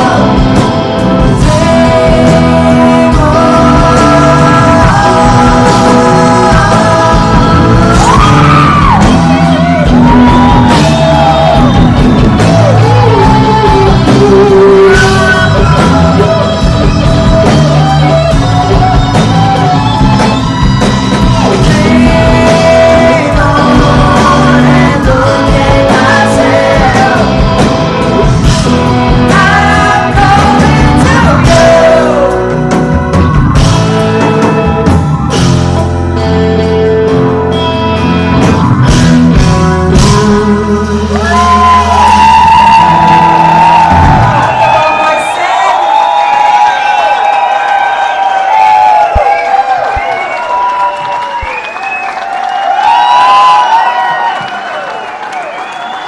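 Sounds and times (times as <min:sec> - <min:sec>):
person singing lead vocal: 0:00.0 - 0:18.0, 0:21.4 - 0:33.3, 0:39.1 - 0:45.9
rock band playing: 0:00.0 - 0:56.0.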